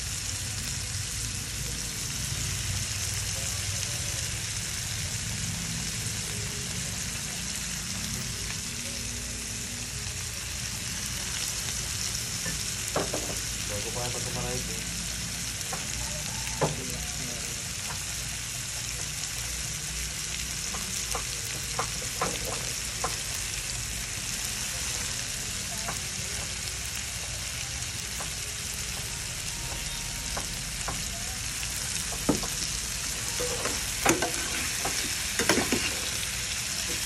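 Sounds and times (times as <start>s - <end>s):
shrimp sizzling in a frying pan: 0.0s - 37.0s
metal spatula tapping a pan: 33.4s - 35.9s.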